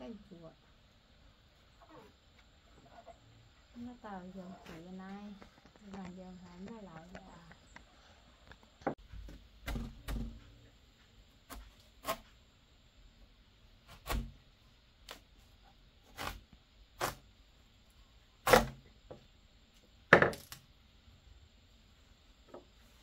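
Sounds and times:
sharp knocks and cracks: 8.6s - 10.4s.

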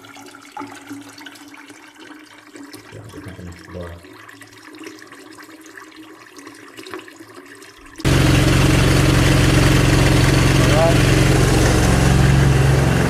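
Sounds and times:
hose water running into drain: 0.0s - 13.0s
petrol engine running: 8.1s - 13.0s.

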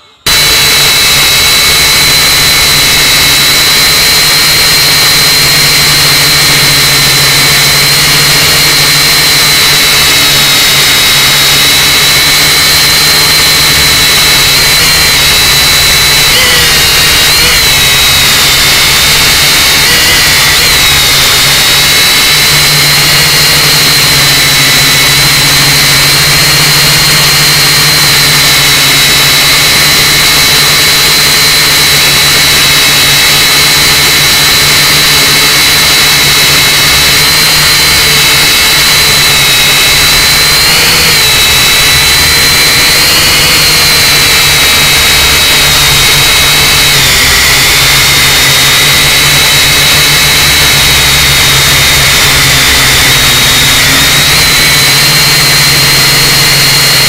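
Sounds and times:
toy quadcopter motors whining: 0.0s - 57.0s.

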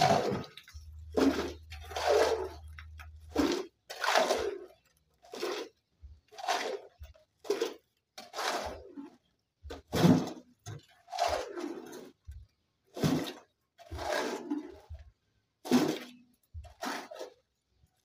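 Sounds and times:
shovel scraping gravel: 0.0s - 9.2s, 12.9s - 14.9s, 15.6s - 17.5s.

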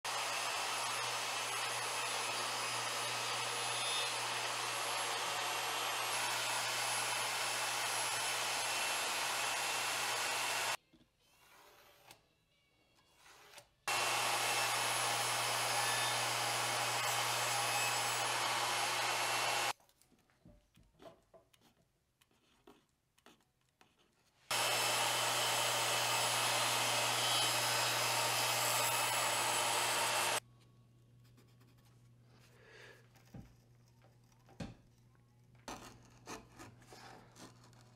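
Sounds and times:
table saw cutting plywood: 0.1s - 10.8s, 13.9s - 19.7s, 24.5s - 30.4s.

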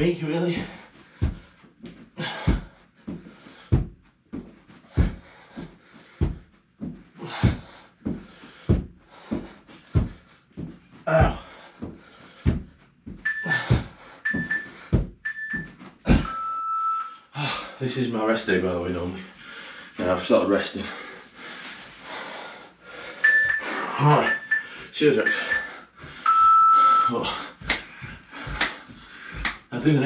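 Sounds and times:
thumps of landing feet: 0.0s - 16.4s, 27.1s - 30.0s
man panting hard: 0.4s - 15.1s, 19.2s - 20.0s, 20.7s - 29.7s
interval timer beeps: 13.2s - 17.2s, 23.2s - 27.3s.

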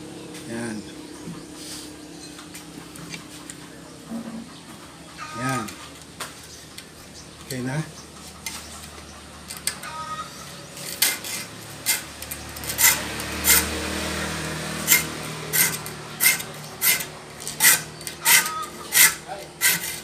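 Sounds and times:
steel file rasping on saw teeth: 10.8s - 13.8s, 14.8s - 20.0s.

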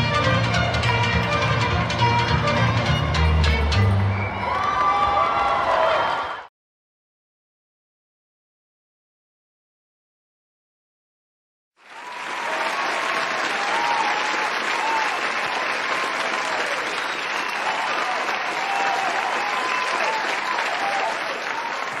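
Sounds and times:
audience applauding: 0.6s - 6.5s, 11.8s - 22.0s.

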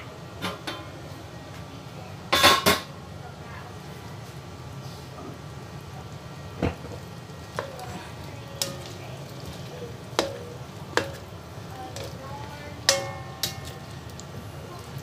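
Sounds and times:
low sizzle: 0.0s - 15.0s
spatula clinking against a wok: 8.6s - 9.0s, 9.6s - 11.3s, 12.8s - 14.2s.

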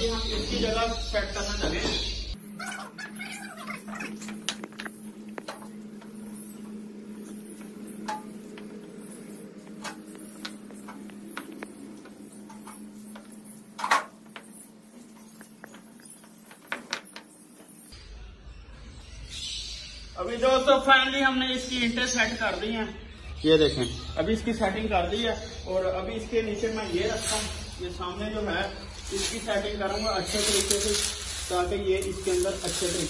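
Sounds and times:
steady low hum: 2.3s - 18.0s.

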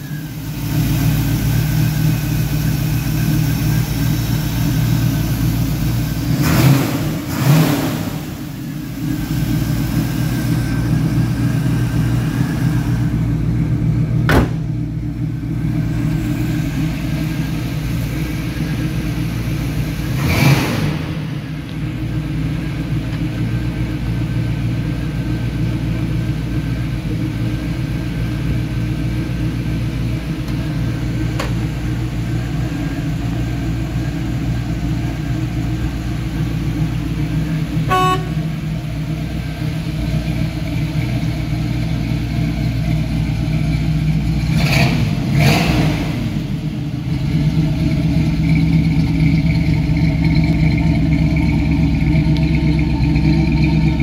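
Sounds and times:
car engine idling and blipped: 0.0s - 54.0s.

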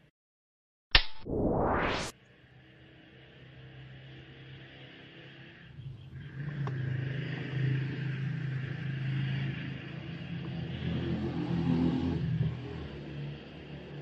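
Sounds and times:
single click: 0.9s - 1.4s
engine running low hum: 1.9s - 14.0s.

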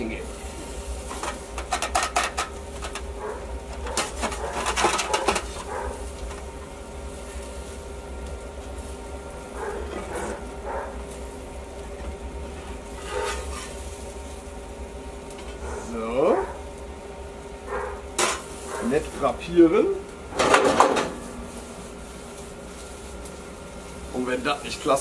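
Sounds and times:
steady low hum: 0.0s - 25.0s
metal utensils clinking: 1.2s - 3.1s.

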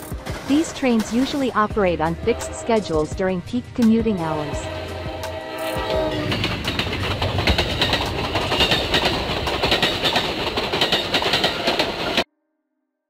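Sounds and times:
train wheels rumbling on rails: 0.0s - 12.2s
clicking and clattering of wheels: 6.2s - 12.2s.

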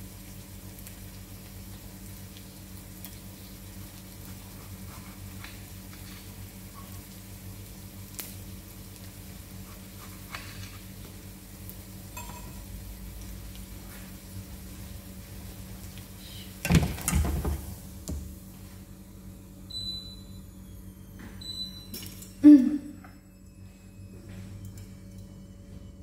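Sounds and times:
kitchenware clattering: 12.2s - 12.6s.

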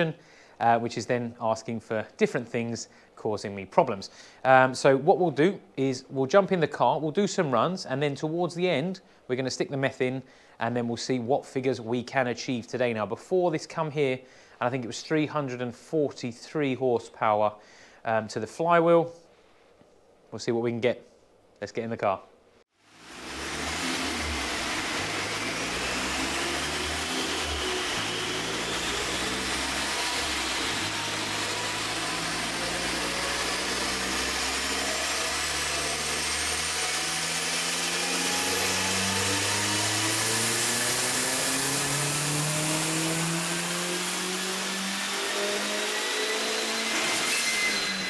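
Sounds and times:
car engine revving under load: 23.0s - 48.0s
high whine: 23.0s - 48.0s.

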